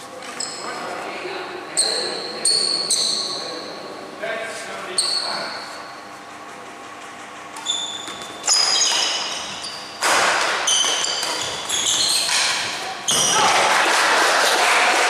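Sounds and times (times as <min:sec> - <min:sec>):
rackets hitting shuttlecock: 0:07.6 - 0:15.0.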